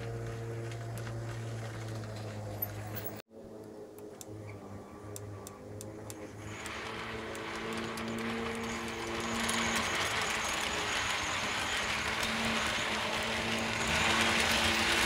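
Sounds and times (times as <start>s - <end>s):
wheels rolling on rails: 0.0s - 3.2s, 4.0s - 15.0s
model train motor hum: 5.1s - 15.0s.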